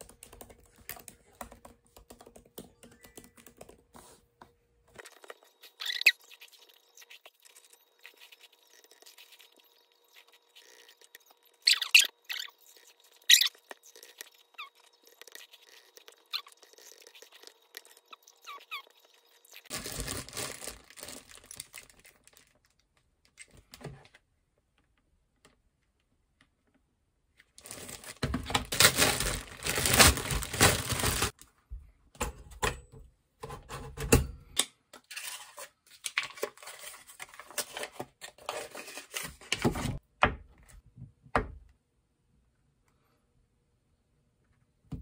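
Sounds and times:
plastic and foil crinkling: 0:05.0 - 0:23.0, 0:27.6 - 0:31.4.

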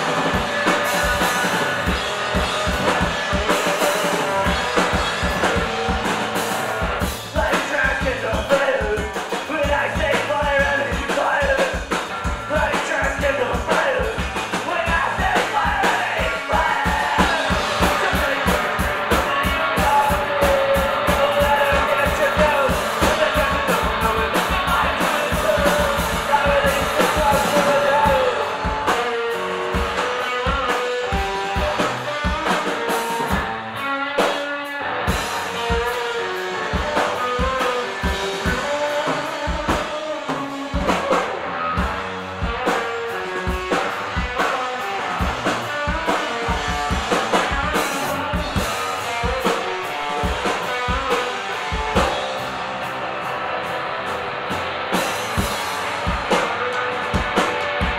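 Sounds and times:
person singing: 0:00.0 - 0:33.4, 0:35.3 - 0:52.4
distorted electric guitar: 0:00.0 - 0:57.9
fast drum kit: 0:00.0 - 0:57.9.

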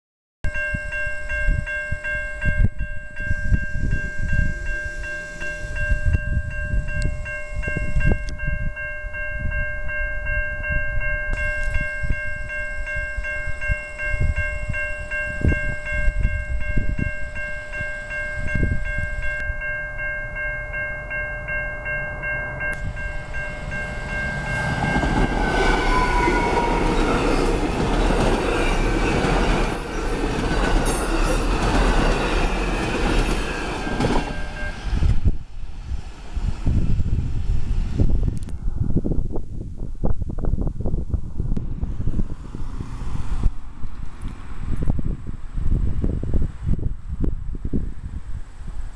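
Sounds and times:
railroad crossing bell ringing: 0:00.4 - 0:35.5
wind rumble on microphone: 0:00.5 - 0:48.9
train wheels rumbling on rails: 0:00.7 - 0:47.8
train wheel squeal: 0:21.8 - 0:35.2.

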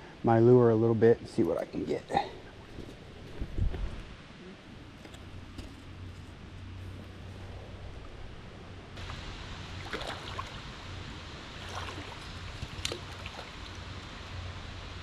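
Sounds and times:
stream water running: 0:04.9 - 0:15.0
water splashes: 0:09.0 - 0:15.0.

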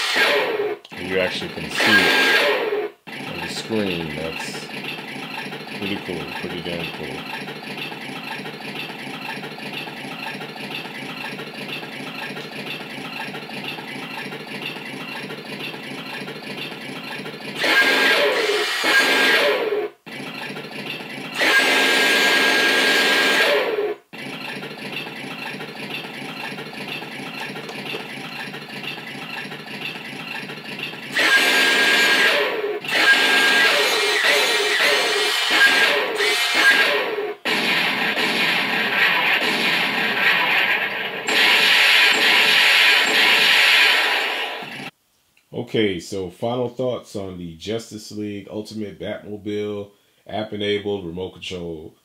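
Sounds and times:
toy engine idling sound effect: 0:00.0 - 0:37.2, 0:41.3 - 0:44.9.

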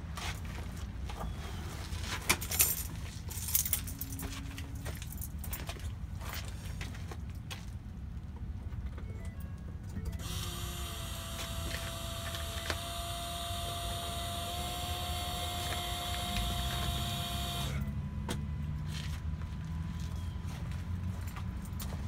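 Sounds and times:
electric fuel pump whine: 0:10.2 - 0:18.7.

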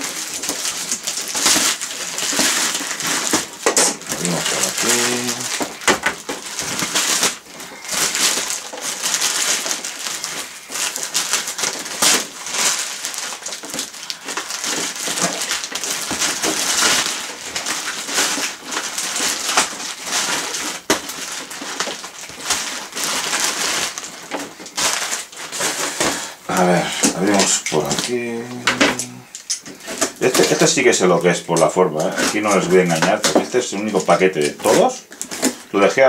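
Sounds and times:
plastic mailing bag crinkling: 0:00.0 - 0:36.0.

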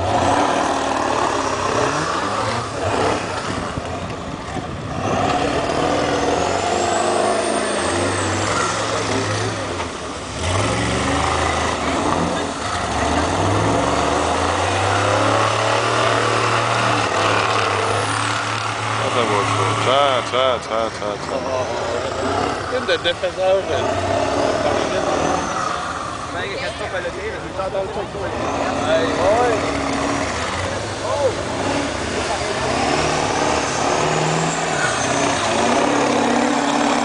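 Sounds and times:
pickup truck engines revving: 0:00.0 - 0:37.0
tires churning through slush and mud: 0:00.0 - 0:37.0.

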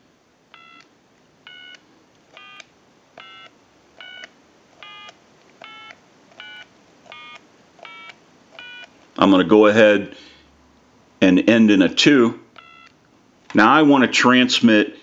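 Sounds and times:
telephone keypad dialing tones: 0:00.5 - 0:00.9, 0:01.5 - 0:01.8, 0:02.4 - 0:08.9, 0:12.6 - 0:13.0.

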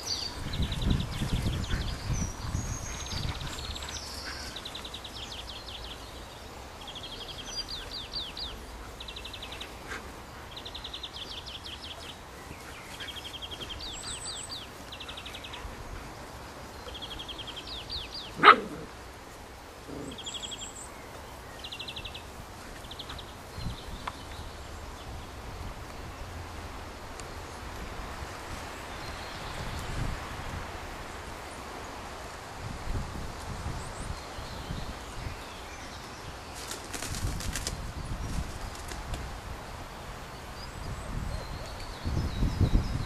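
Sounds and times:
songbirds trilling: 0:00.0 - 0:26.3, 0:39.8 - 0:43.0
dog barking sharply: 0:18.4 - 0:18.8.

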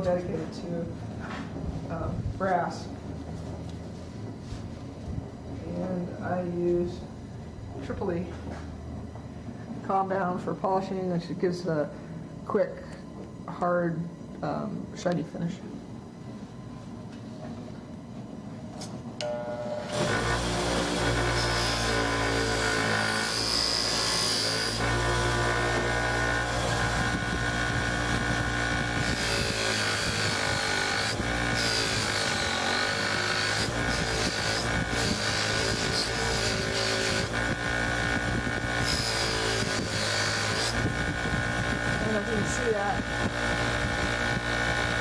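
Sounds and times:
bench buffer motor humming: 0:19.1 - 0:45.0.

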